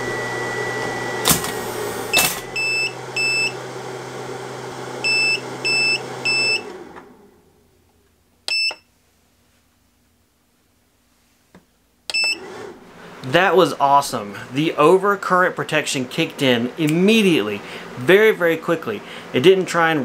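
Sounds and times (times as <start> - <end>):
inverter hum: 0.0 - 9.0
inverter alarm beeps: 2.1 - 3.6, 5.0 - 6.7, 8.5 - 8.9, 12.1 - 12.4.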